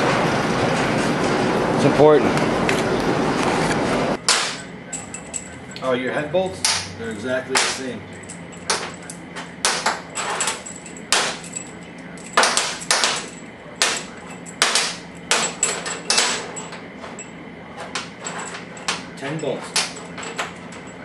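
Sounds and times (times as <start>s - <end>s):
metal bolts clinking: 8.2s - 21.0s.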